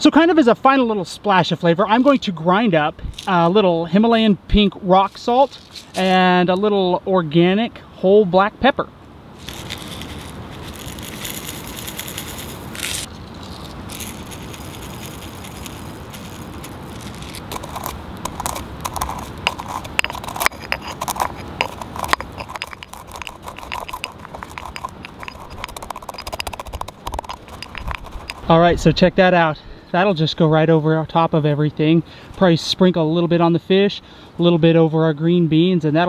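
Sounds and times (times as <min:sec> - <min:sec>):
pestle grinding gritty crunches: 0:03.0 - 0:04.0, 0:05.0 - 0:06.4, 0:09.4 - 0:29.0
salt poured into mortar: 0:09.4 - 0:28.5.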